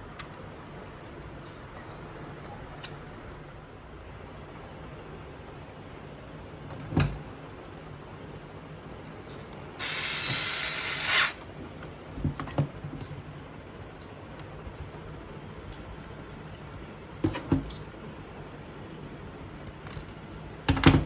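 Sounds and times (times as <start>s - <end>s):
electric screwdriver running: 9.8s - 11.4s.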